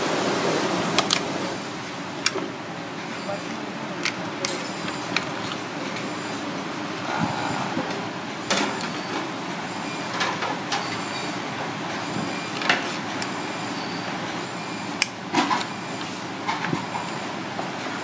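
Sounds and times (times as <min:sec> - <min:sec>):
street traffic hum: 0:00.7 - 0:10.6.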